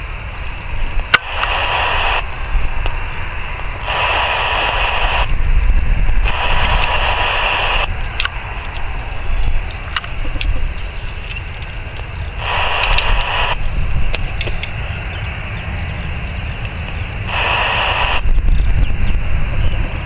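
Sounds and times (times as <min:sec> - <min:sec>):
radio static hiss bursts: 0:00.0 - 0:15.0, 0:16.4 - 0:20.0
low rumble: 0:00.0 - 0:20.0
sharp click: 0:12.8 - 0:13.4.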